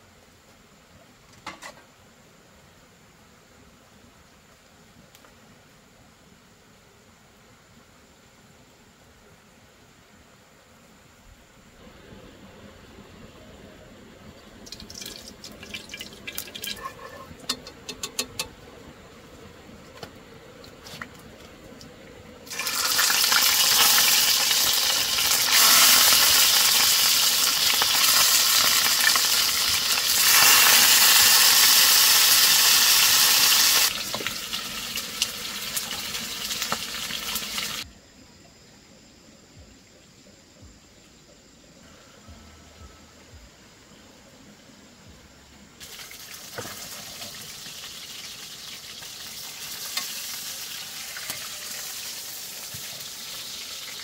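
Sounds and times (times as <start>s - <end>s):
fish sizzling in hot oil: 14.6s - 18.5s, 22.5s - 37.8s, 45.8s - 54.0s.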